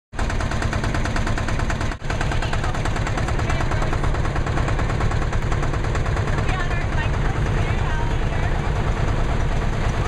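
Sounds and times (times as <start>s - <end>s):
tractor engines puttering: 0.2s - 10.0s.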